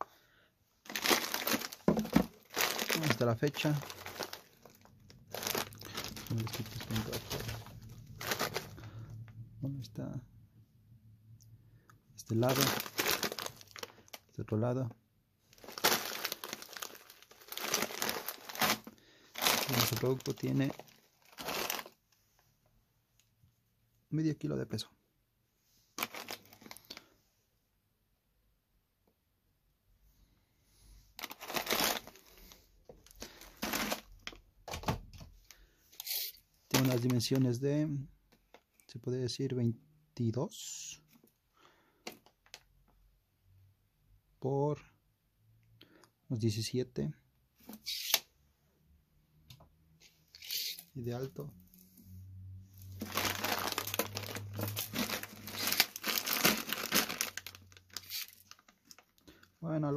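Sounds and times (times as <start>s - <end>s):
plastic bag crinkling: 0.8s - 9.0s, 12.3s - 14.4s, 15.5s - 22.0s, 26.0s - 27.0s, 31.2s - 34.4s, 36.0s - 37.4s, 50.3s - 51.7s, 52.8s - 59.4s.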